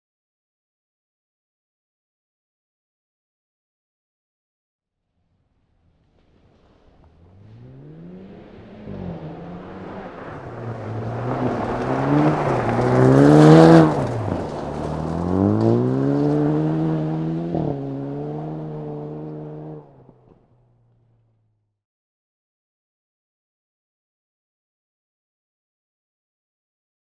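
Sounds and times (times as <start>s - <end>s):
rally car engine revving: 6.1s - 21.3s.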